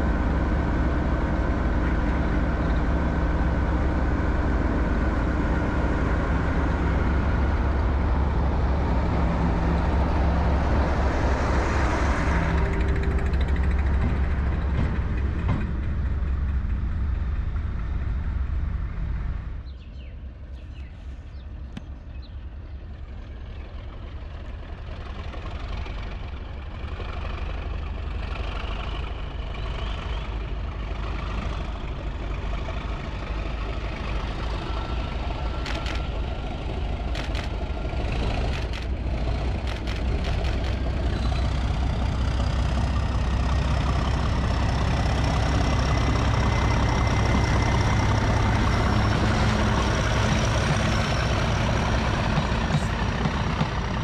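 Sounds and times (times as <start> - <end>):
train coaches rolling on rails: 0.0 - 21.6, 22.3 - 54.0
diesel locomotive engine rumble: 0.0 - 54.0
sharp clicks: 35.6 - 36.1, 37.1 - 37.6, 38.4 - 39.0, 39.6 - 40.9.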